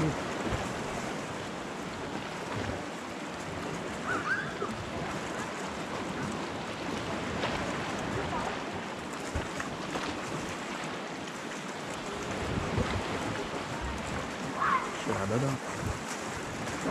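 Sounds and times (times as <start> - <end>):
water lapping against rocks: 0.0 - 16.9
wind on microphone: 12.0 - 16.9.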